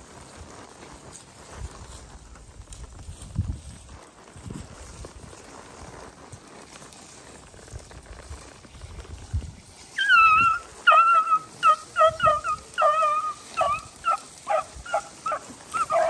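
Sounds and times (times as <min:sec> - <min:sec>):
beagle baying: 0:10.0 - 0:16.0
dog yelping barks: 0:10.0 - 0:16.0.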